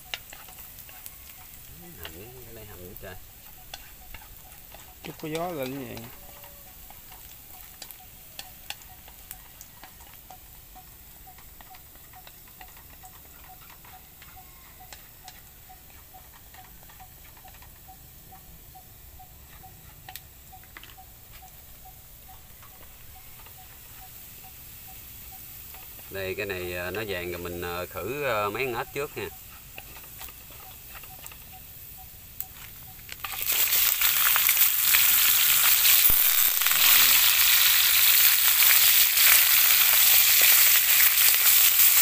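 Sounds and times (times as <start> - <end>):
faint regular ticking: 0.0 - 41.9
garlic sizzling in oil: 0.0 - 42.0
chopsticks clicking against pan: 3.4 - 10.4, 11.3 - 17.8.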